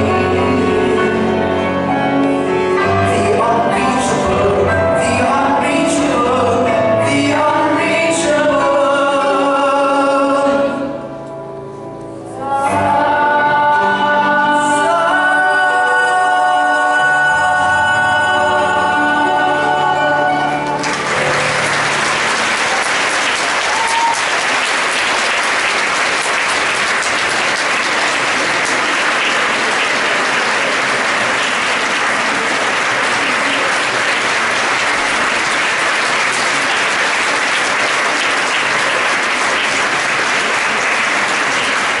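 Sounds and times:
boys' vocal group singing: 0:00.0 - 0:01.6, 0:12.4 - 0:20.7
audience applause: 0:20.5 - 0:42.0.

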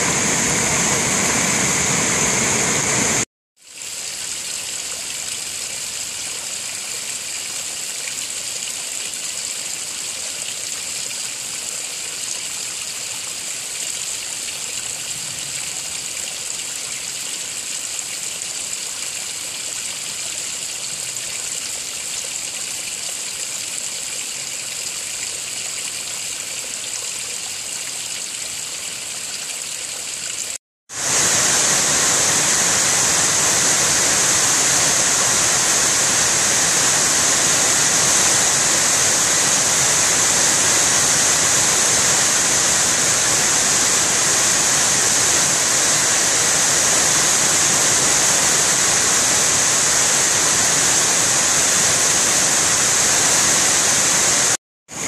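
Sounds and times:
water rushing over boulders: 0:00.0 - 0:23.3, 0:30.1 - 0:55.0
water trickling and dripping: 0:03.6 - 0:30.6.

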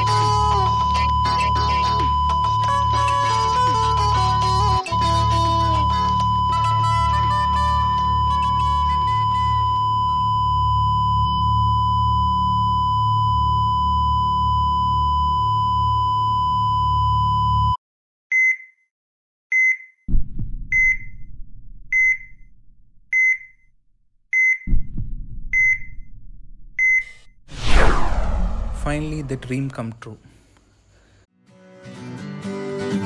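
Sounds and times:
flatline alarm tone: 0:00.0 - 0:17.8
patient monitor pulse beeps: 0:00.6 - 0:18.7, 0:19.5 - 0:20.0, 0:20.7 - 0:21.2, 0:22.0 - 0:22.4, 0:23.1 - 0:23.6, 0:24.4 - 0:24.9, 0:25.6 - 0:26.0, 0:26.8 - 0:27.2
low hum: 0:24.7 - 0:29.7.

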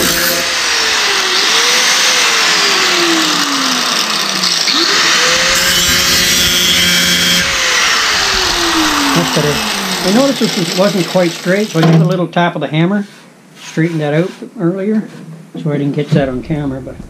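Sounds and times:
angle grinder grinding steel: 0:00.0 - 0:11.8.

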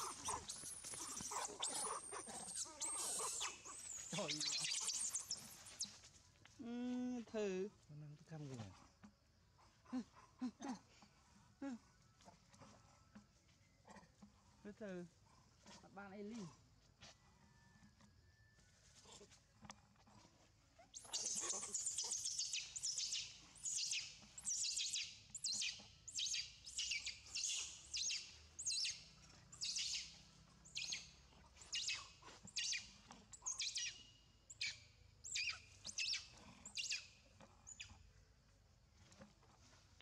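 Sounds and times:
monkey screaming: 0:00.0 - 0:04.6.

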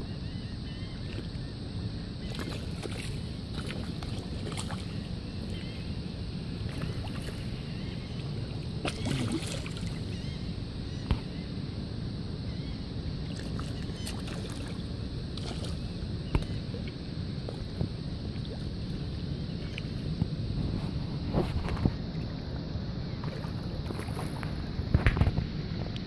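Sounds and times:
wind: 0:00.0 - 0:26.0
water rumbling: 0:01.0 - 0:11.5, 0:12.5 - 0:25.5
fish splashing at surface: 0:08.8 - 0:10.0.

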